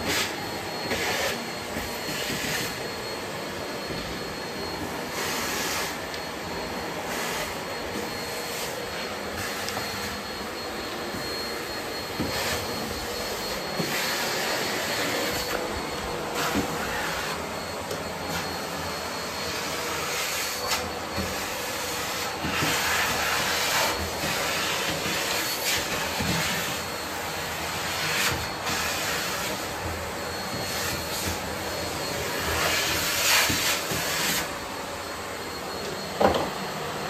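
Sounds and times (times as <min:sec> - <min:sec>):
vacuum cleaner running: 0:00.0 - 0:37.0.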